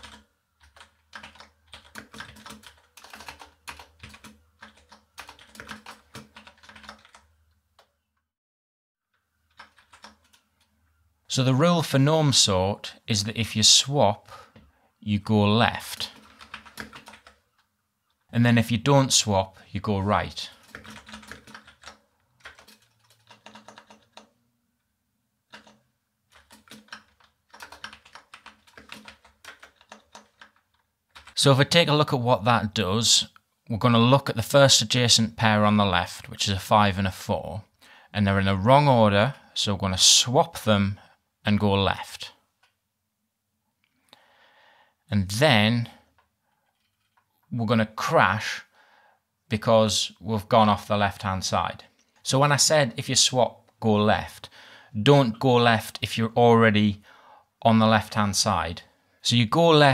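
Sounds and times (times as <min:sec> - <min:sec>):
computer keyboard typing: 0:00.0 - 0:07.9, 0:09.5 - 0:10.7, 0:16.0 - 0:17.7, 0:20.5 - 0:24.3, 0:25.5 - 0:31.4.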